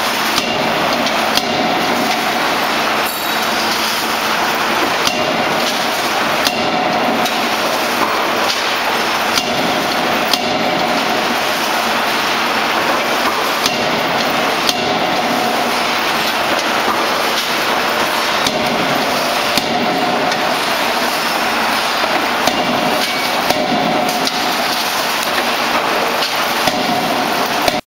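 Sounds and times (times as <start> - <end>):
loud shop machinery noise: 0.0 - 27.9
forging hammer blows on steel: 5.0 - 20.9, 22.1 - 27.8.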